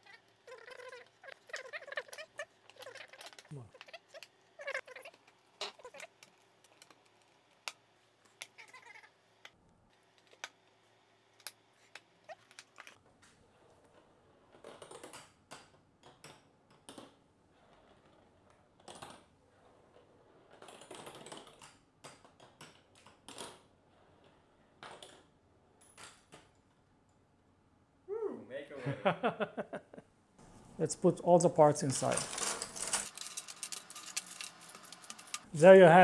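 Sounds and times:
marbles clattering on plastic rails: 0.0 - 8.9, 19.9 - 26.2, 31.6 - 36.0.

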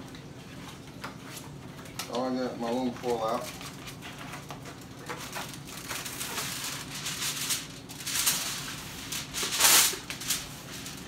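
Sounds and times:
aluminum foil crinkling: 2.1 - 11.0
foil tearing: 3.3 - 11.0.

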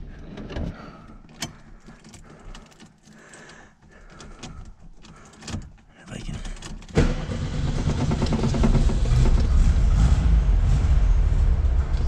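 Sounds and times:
handling noises: 0.3 - 7.0
keys jingling: 1.2 - 6.9.

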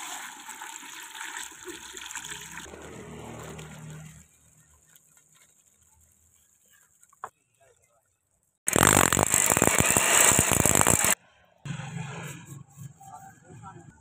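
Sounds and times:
water pouring into plastic bucket: 0.0 - 5.9.

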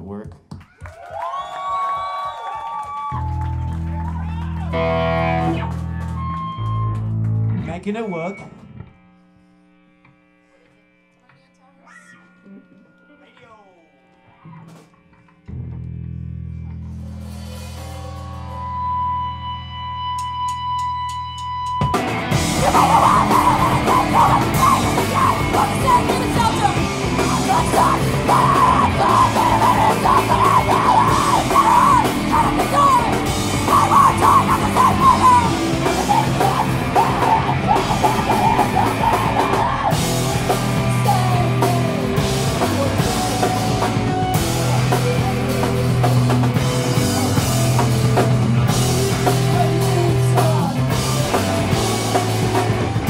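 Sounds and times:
distorted electric guitars: 3.3 - 53.0
drum kit: 16.8 - 53.0
screamed vocals: 22.5 - 40.4.

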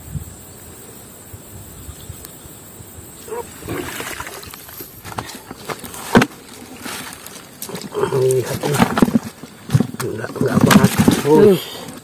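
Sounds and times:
insects buzzing: 0.0 - 12.0
water splashing and sloshing: 3.3 - 12.0.

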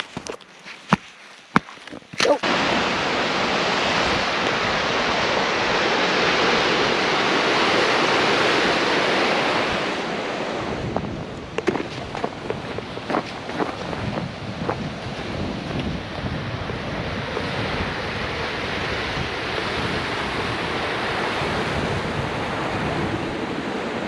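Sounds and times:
boots cracking thin ice: 0.0 - 2.4, 11.5 - 15.9
boots crunching on snow: 0.0 - 2.4, 11.5 - 15.8
creek rushing over rocks: 0.0 - 23.1.

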